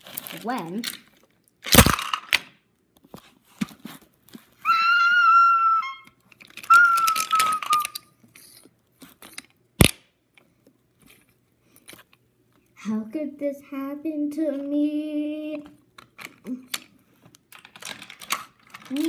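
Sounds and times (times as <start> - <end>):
toy engine knocked over: 1.6 - 2.6, 6.4 - 8.0
whistled train whistle imitation: 4.6 - 8.0
toy train wheels clicking on track: 6.5 - 8.6.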